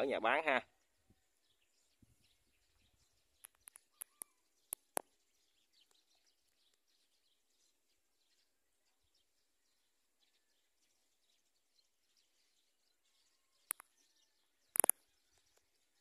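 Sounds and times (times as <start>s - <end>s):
faint bird chirps: 0.0s - 16.0s
sharp clicks: 3.4s - 5.1s, 13.6s - 13.9s, 14.7s - 15.0s.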